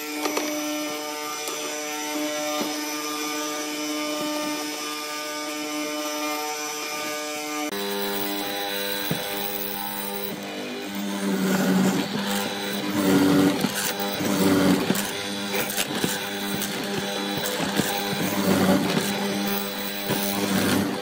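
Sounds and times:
mortiser motor whine: 0.0 - 21.0.

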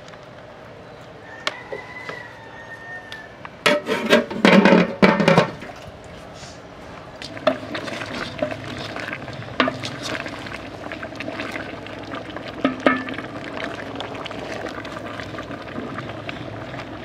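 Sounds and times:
meat sizzling and bubbling in a pot: 1.2 - 6.4, 7.0 - 17.0
wooden spoon stirring: 7.2 - 13.2.

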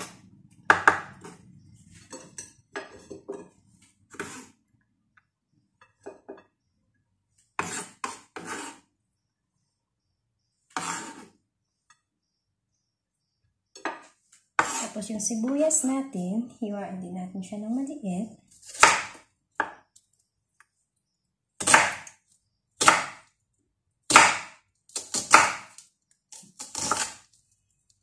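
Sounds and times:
knife chopping on wooden board: 7.6 - 8.8, 14.6 - 14.8, 18.7 - 19.8, 21.6 - 22.1, 22.8 - 23.2, 24.1 - 25.7, 26.4 - 27.2.

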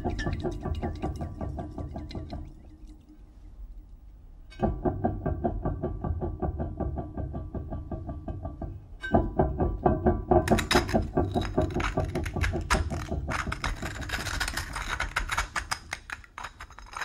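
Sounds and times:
crusty lump crackling and crunching: 10.5 - 17.0.

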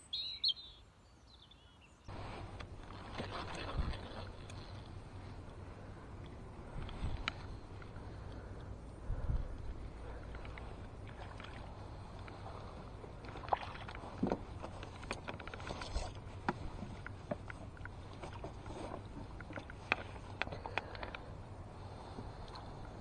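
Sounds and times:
wind rumble on microphone: 2.1 - 23.0
fish splashing in water: 10.0 - 16.5.

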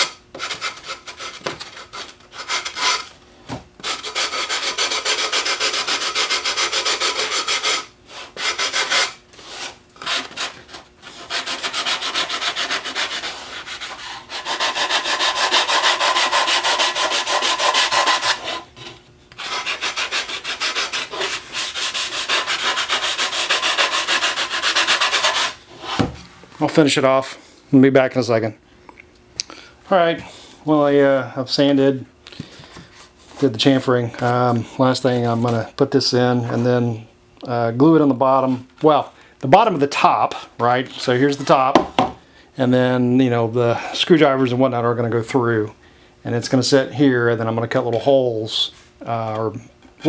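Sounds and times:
sanding block rasping on wood: 3.8 - 18.7, 19.4 - 25.9.

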